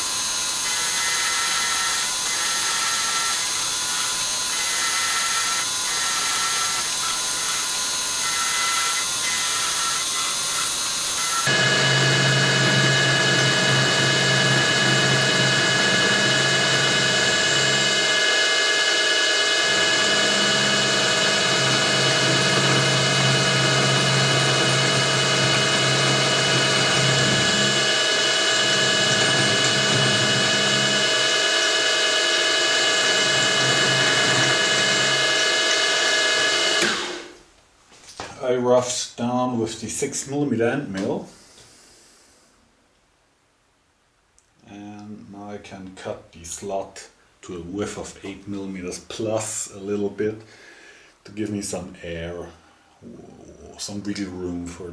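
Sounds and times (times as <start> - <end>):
milling machine whine: 0.0 - 37.4.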